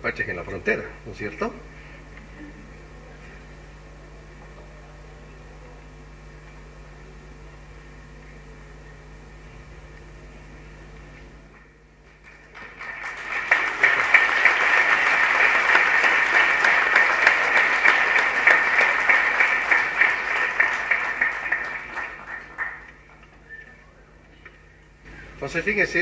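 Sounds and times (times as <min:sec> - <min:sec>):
audience applauding: 0:12.0 - 0:23.5.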